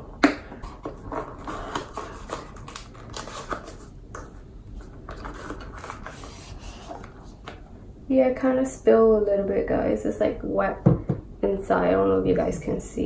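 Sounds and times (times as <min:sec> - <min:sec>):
cardboard box rustling and scraping: 0:04.8 - 0:07.4.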